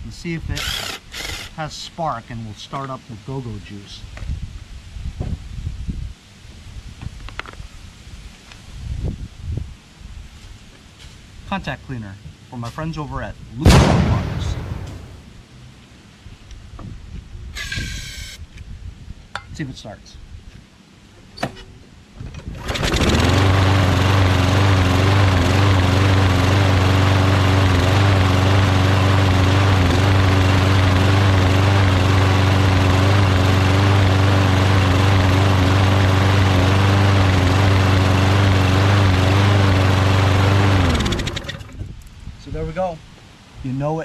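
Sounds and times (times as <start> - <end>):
small mower engine running: 0.6 - 1.6, 22.4 - 41.8.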